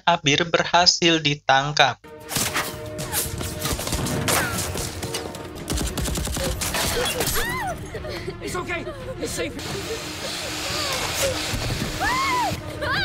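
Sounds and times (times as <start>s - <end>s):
film music: 2.0s - 13.0s
rapid automatic gunfire: 5.7s - 7.0s.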